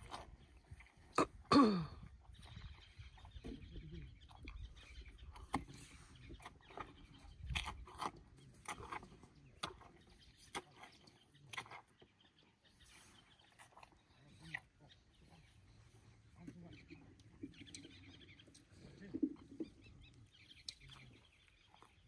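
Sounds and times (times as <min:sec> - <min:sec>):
elephant slurping water: 0:00.0 - 0:16.4.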